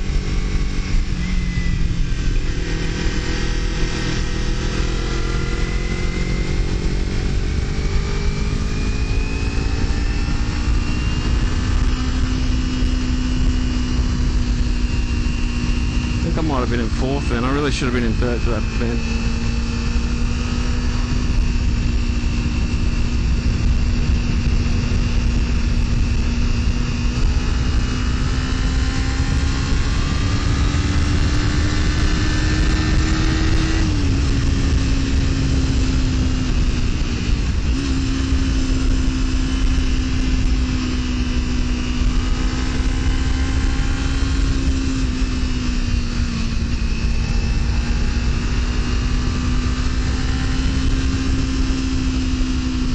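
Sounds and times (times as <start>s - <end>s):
motorcycle engine cruising: 0.0s - 52.9s
wind rush: 0.0s - 52.9s.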